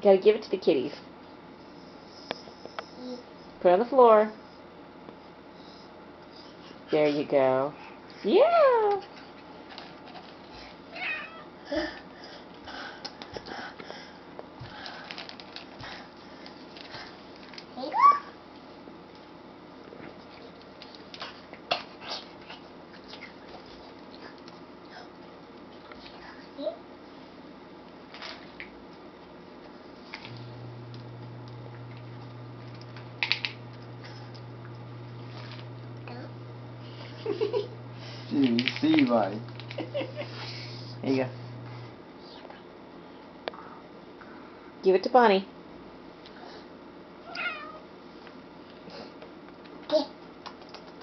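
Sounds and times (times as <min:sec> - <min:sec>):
cats meowing: 0:10.9 - 0:11.5, 0:47.2 - 0:47.9
steady low hum: 0:18.4 - 0:51.0.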